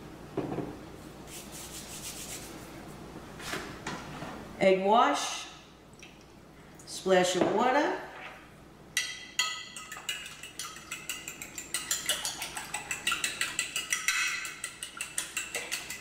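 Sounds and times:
fork clinking against glass: 9.0s - 16.0s.

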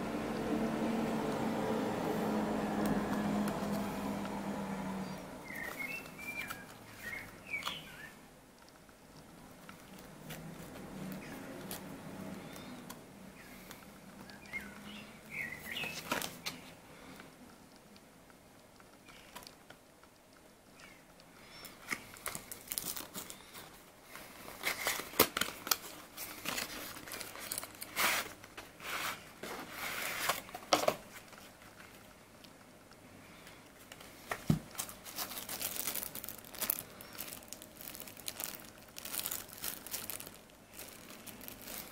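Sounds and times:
plastic crinkling: 5.0s - 17.8s, 18.8s - 41.9s
cardboard box rustling: 34.2s - 41.9s.

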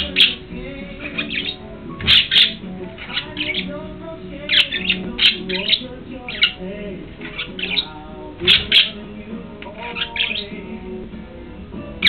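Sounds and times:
budgerigar chatter: 0.0s - 3.8s, 4.4s - 6.6s, 7.2s - 10.6s
budgerigar squawks and chirps: 0.0s - 3.8s, 4.4s - 6.6s, 7.2s - 9.0s, 9.6s - 10.6s.

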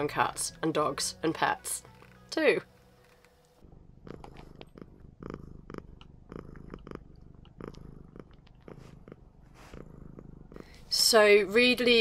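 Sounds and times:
cat purring: 0.0s - 12.0s
soft irregular clicks: 5.9s - 8.7s.

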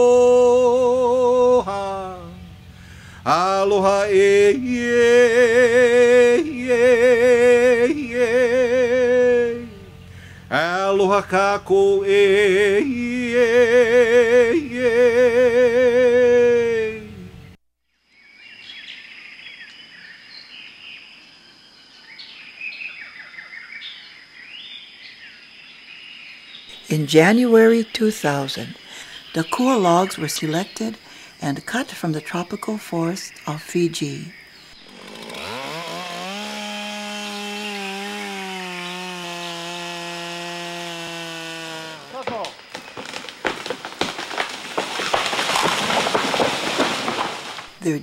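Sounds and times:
chainsaw cutting a log: 0.0s - 17.2s, 34.7s - 47.8s.

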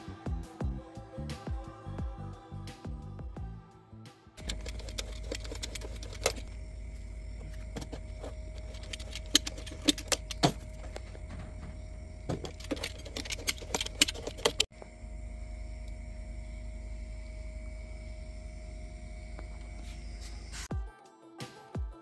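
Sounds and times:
steady low hum: 4.4s - 20.7s.

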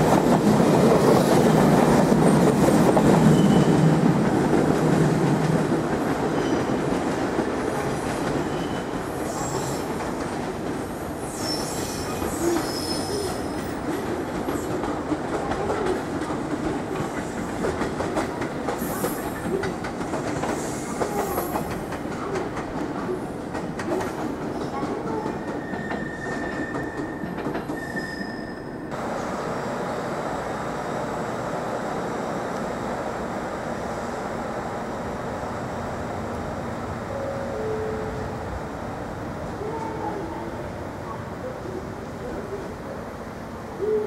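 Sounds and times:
train running hum: 0.0s - 27.8s, 28.9s - 44.0s
high wheel squeals: 3.3s - 3.7s, 11.2s - 13.6s, 25.6s - 28.9s
train wheels clicking over rail joints: 11.8s - 27.9s.

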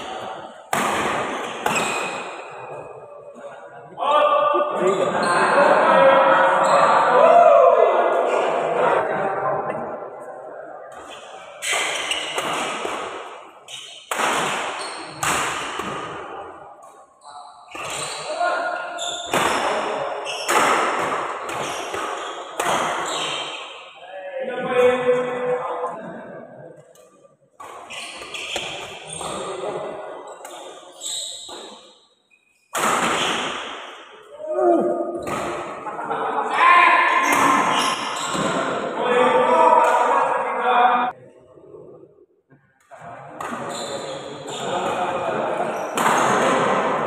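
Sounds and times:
racket striking shuttlecock: 11.6s - 16.2s.

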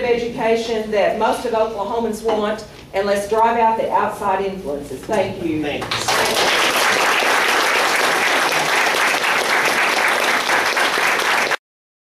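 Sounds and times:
audience applauding: 5.9s - 11.6s.

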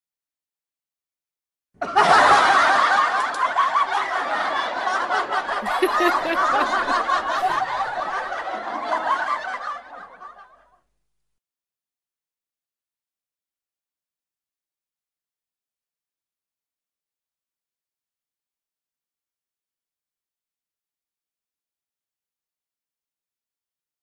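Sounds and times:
group of people laughing: 1.8s - 10.8s.

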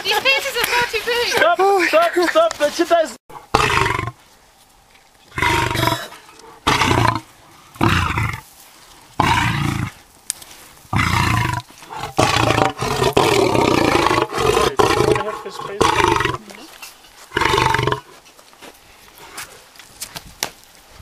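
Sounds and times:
lion roaring: 3.3s - 4.2s, 5.3s - 8.4s, 9.2s - 10.0s, 10.9s - 16.6s, 17.3s - 18.1s.

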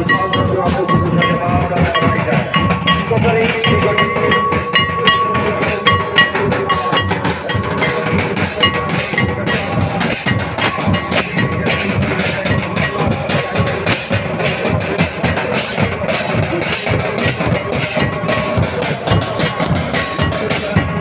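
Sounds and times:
steady high tone: 0.0s - 14.1s
barrel hand drum: 0.0s - 21.0s
bass drum beating: 0.0s - 21.0s.

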